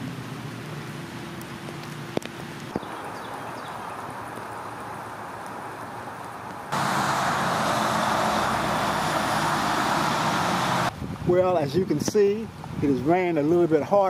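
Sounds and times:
engines humming: 0.0s - 10.9s
tyres hissing on wet pavement: 0.0s - 11.0s
light rain hissing: 0.0s - 14.0s.

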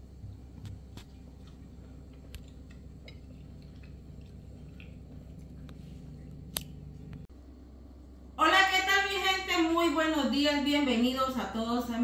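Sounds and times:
low room hum: 0.0s - 12.0s
chewing: 0.2s - 7.2s.

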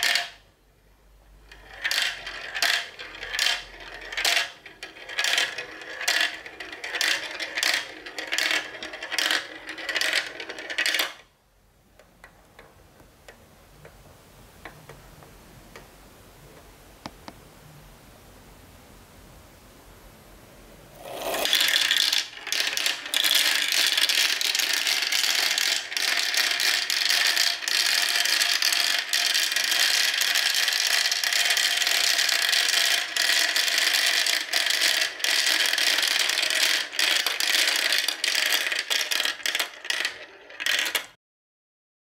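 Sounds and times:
marbles rattling down plastic track: 0.0s - 0.4s, 1.4s - 11.3s, 21.0s - 41.2s.

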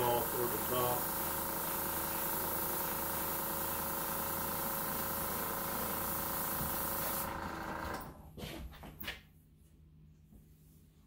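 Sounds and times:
airbrush air hissing: 0.0s - 7.4s
air compressor droning hum: 0.0s - 8.6s.

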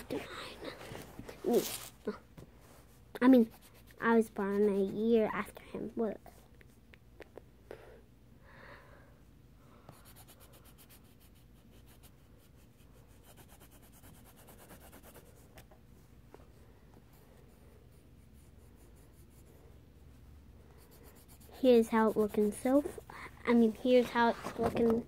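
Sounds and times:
colored pencil scratching paper: 3.2s - 6.4s, 9.8s - 15.7s, 17.1s - 19.8s, 20.6s - 25.0s.

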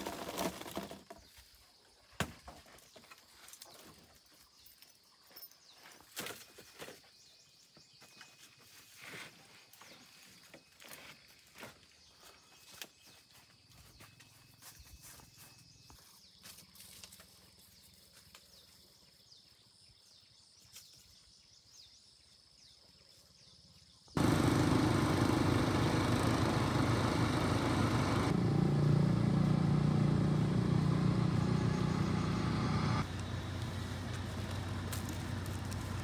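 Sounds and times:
faint bird chirps: 3.0s - 24.1s
vehicle engine and road noise: 24.2s - 36.0s.

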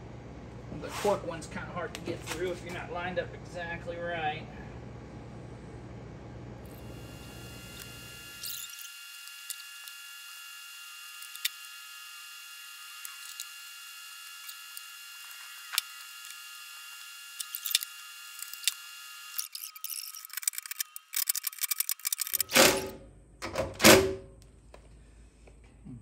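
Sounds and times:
faint steady high hum: 0.0s - 19.6s
cordless drill driving screws: 6.7s - 22.8s
tools clicking against metal: 19.4s - 22.6s.

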